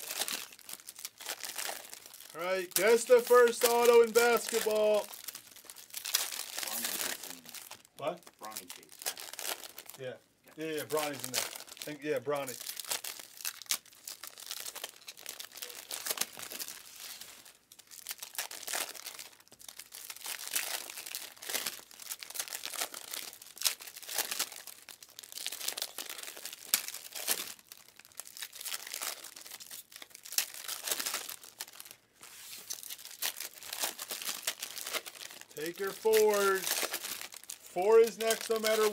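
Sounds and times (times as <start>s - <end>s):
foil wrappers crinkling and tearing: 0.0s - 38.9s.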